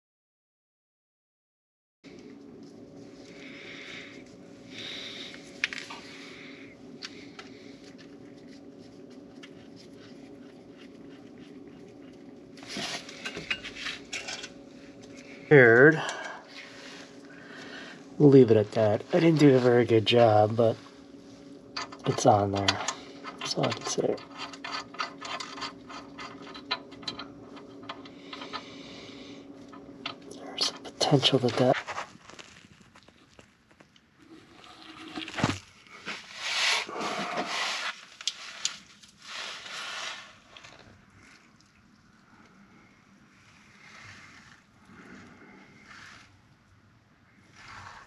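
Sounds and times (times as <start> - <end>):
steady background hum: 2.1 - 48.0
metallic clicks and scrapes: 21.8 - 28.9
rustling: 31.5 - 41.5.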